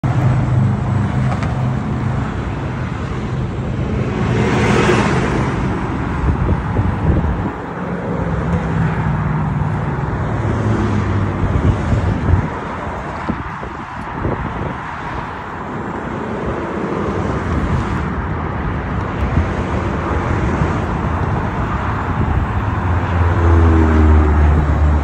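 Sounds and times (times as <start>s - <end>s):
vehicle passing: 0.0s - 13.5s, 19.4s - 25.0s
road traffic: 0.0s - 25.0s.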